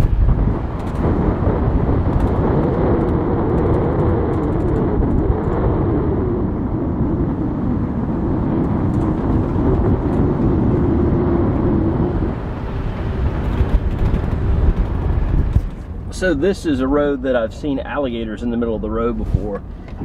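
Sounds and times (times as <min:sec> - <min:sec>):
vehicle engine driving slowly: 0:00.0 - 0:20.0.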